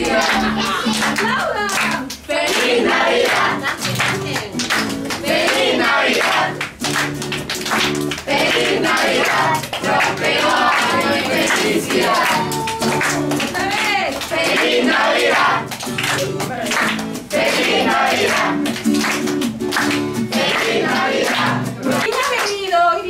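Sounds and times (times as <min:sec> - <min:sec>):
young voices singing: 0:00.0 - 0:04.0, 0:05.2 - 0:06.8, 0:08.2 - 0:15.8, 0:17.2 - 0:18.8, 0:20.3 - 0:22.1
strummed acoustic guitar: 0:00.0 - 0:22.4
hand-clapping: 0:00.0 - 0:22.8.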